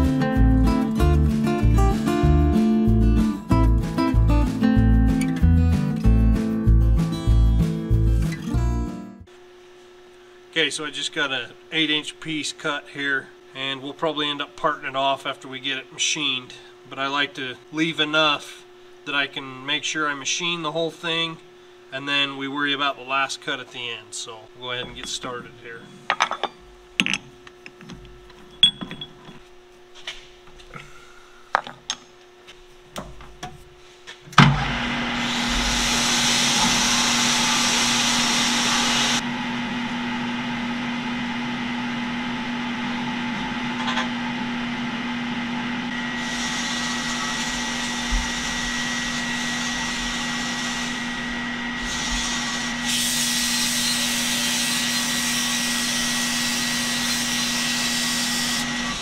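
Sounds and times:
metal clinks and knocks: 0:26.0 - 0:29.5
lathe motor humming: 0:34.6 - 0:59.0.

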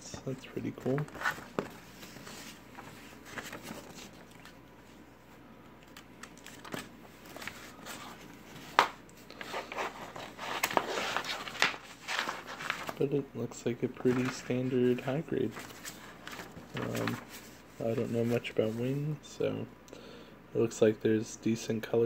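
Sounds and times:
paper pages rustling: 0:00.5 - 0:04.7, 0:05.8 - 0:13.2, 0:13.8 - 0:18.9.

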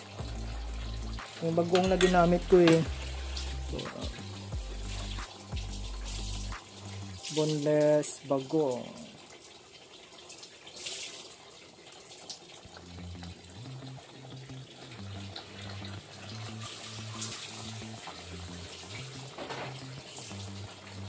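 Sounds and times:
broth bubbling: 0:11.7 - 0:21.0.

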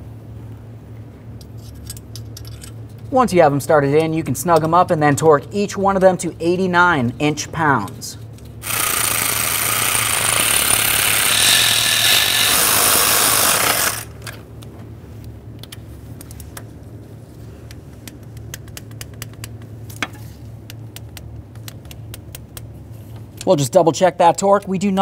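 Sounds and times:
power tool running: 0:08.6 - 0:14.4.

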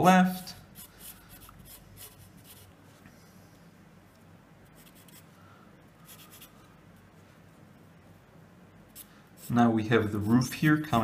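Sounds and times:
pencil scratching on paper: 0:00.8 - 0:02.8, 0:04.8 - 0:05.2.

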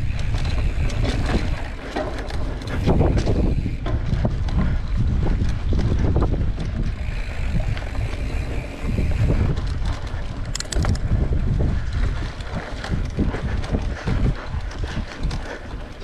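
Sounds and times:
bike rattling over rough trail: 0:00.0 - 0:16.0
wind buffeting microphone: 0:00.0 - 0:16.0
sharp clicks: 0:06.6 - 0:11.2.

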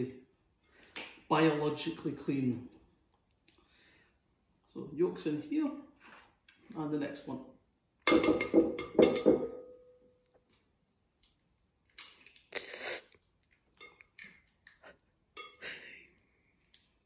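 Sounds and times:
egg knocking on glass bowl: 0:08.1 - 0:09.7
bowl ringing: 0:08.2 - 0:10.2.

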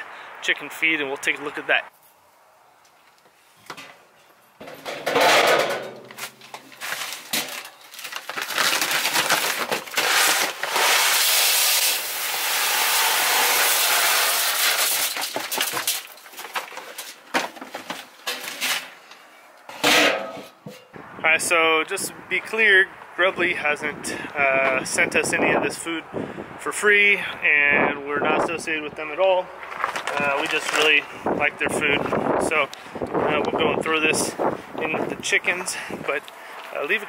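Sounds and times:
metal lid clattering: 0:04.6 - 0:06.3, 0:19.7 - 0:20.9.

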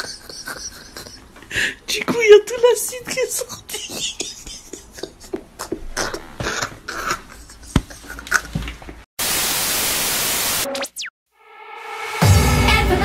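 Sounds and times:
man laughing hard: 0:00.0 - 0:01.7, 0:03.5 - 0:08.6
static hiss: 0:09.2 - 0:10.7.

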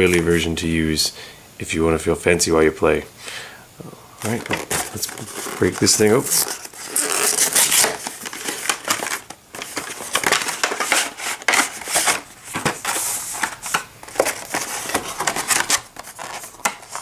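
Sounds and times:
cardboard box being opened: 0:04.2 - 0:17.0
stiff plastic crackling and rustling: 0:04.2 - 0:17.0.

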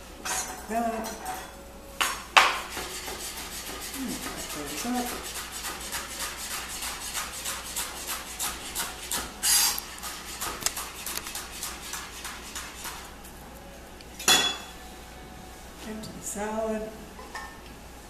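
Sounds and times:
knife chopping on cutting board: 0:02.4 - 0:09.4, 0:10.0 - 0:13.0.

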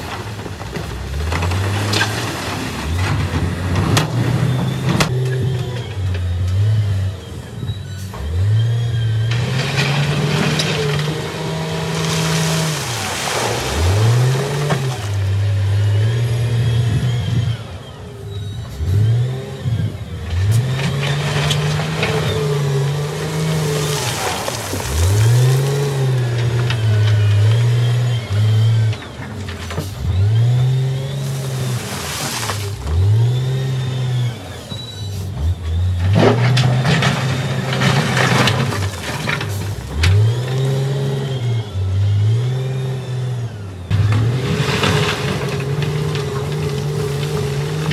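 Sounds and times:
rocks grinding under bucket: 0:00.0 - 0:05.8, 0:09.4 - 0:15.6, 0:20.3 - 0:41.2, 0:43.9 - 0:47.9
diesel engine revving: 0:00.0 - 0:47.9.

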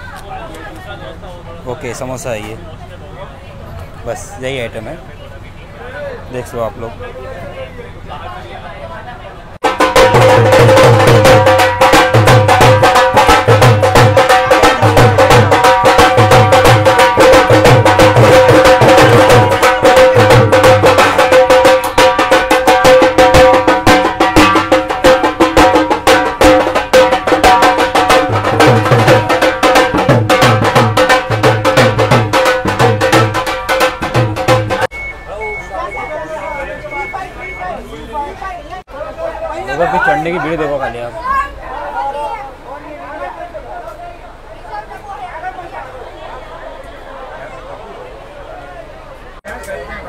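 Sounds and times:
dhol drum playing: 0:09.6 - 0:37.9.

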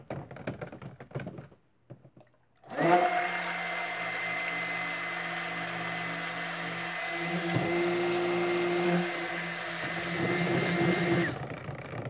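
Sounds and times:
stick blender whining: 0:02.6 - 0:12.0.

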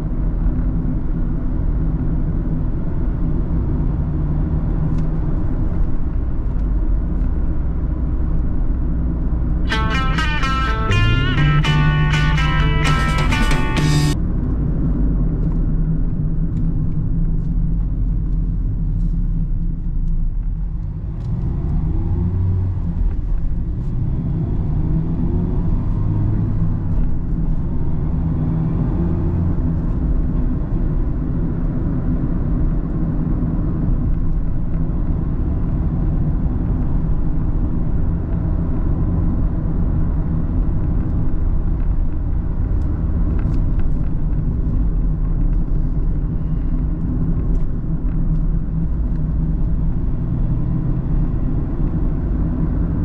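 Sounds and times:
car engine and road rumble: 0:00.0 - 0:53.0
engine accelerating: 0:09.7 - 0:14.2.

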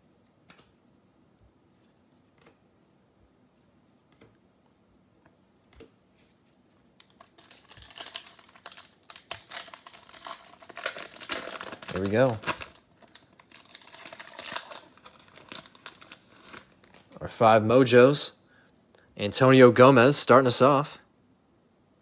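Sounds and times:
foil card pack tearing: 0:07.1 - 0:17.1.

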